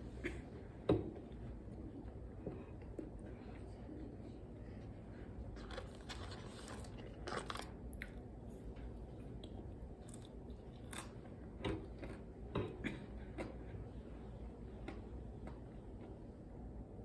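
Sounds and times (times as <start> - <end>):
crunchy bites and chewing: 5.6 - 8.2, 9.4 - 11.2.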